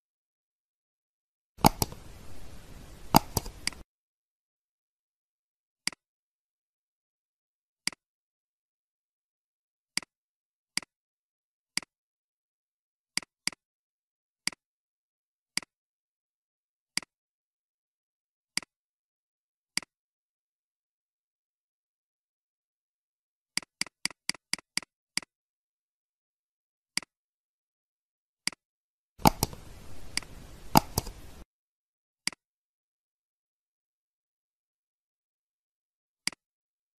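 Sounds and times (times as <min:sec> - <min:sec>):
computer mouse clicks: 0:01.6 - 0:03.8, 0:29.2 - 0:31.4.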